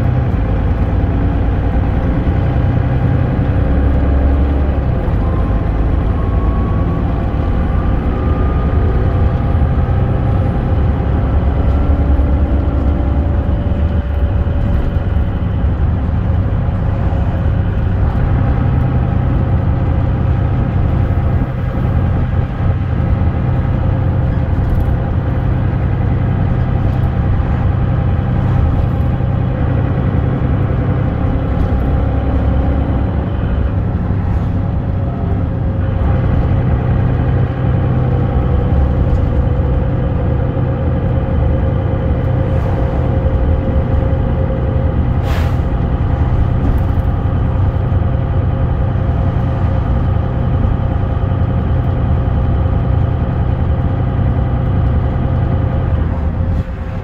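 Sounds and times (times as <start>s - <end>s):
bus engine and road rumble: 0.0s - 57.0s.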